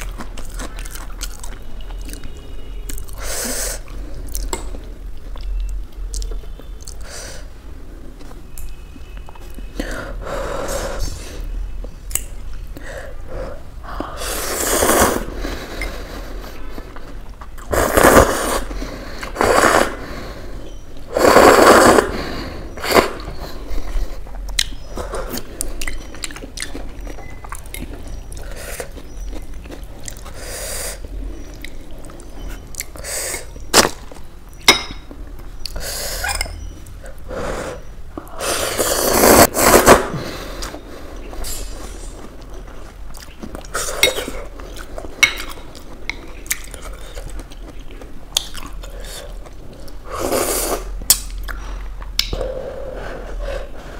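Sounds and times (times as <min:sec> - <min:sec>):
person slurping noodles: 0:14.1 - 0:16.0, 0:17.7 - 0:20.3, 0:21.1 - 0:23.4, 0:37.4 - 0:40.8.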